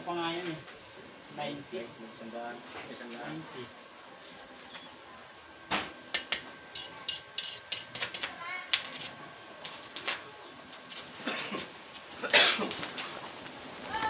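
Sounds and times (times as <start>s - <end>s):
welding arc crackling and popping: 6.1s - 14.0s.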